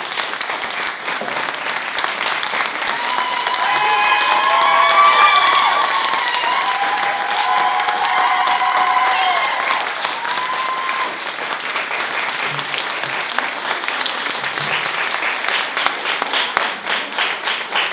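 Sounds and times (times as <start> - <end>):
audience applauding: 0.0 - 17.9
high drawn-out crowd calls: 2.7 - 11.3.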